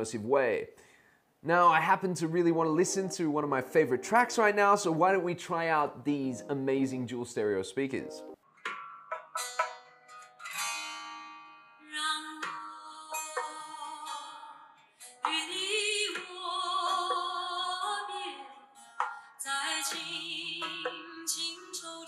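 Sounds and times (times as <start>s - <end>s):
plucked string notes: 7.9s - 11.7s.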